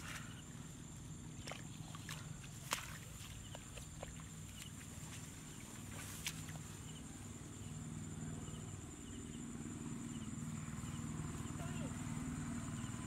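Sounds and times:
hands rustling in wet grass: 0.0s - 6.9s
steady low hum: 0.0s - 13.0s.

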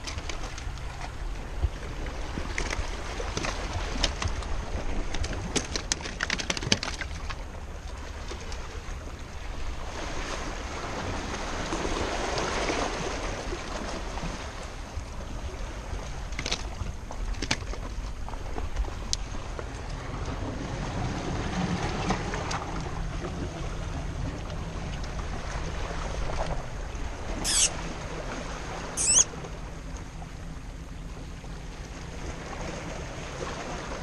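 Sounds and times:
wind rumble on microphone: 0.0s - 34.0s
sea washing against rocks: 9.6s - 28.9s.

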